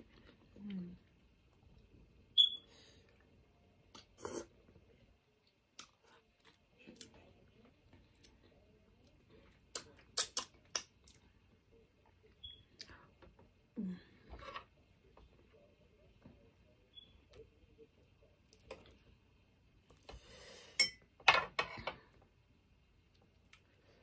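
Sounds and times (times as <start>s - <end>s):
chewing clicks and wet smacks: 5.4s - 7.2s.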